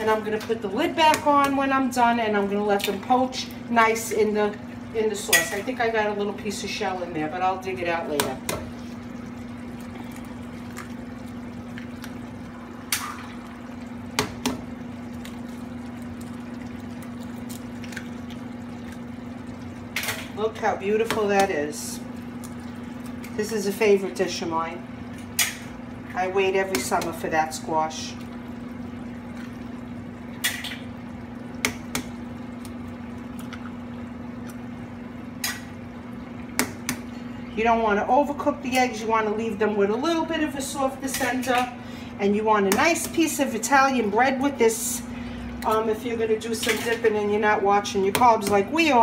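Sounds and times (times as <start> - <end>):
constant low hum: 0.0 - 49.0
sauce bubbling in skillet: 7.5 - 23.7, 24.8 - 37.6.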